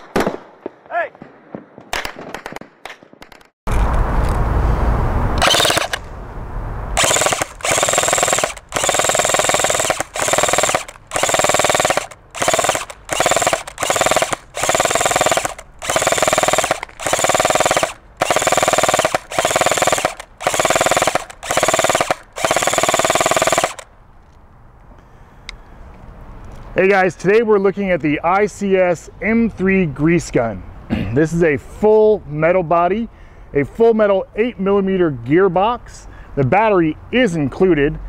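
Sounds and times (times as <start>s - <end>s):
airsoft gun firing bursts: 5.4s - 6.0s, 7.0s - 23.9s.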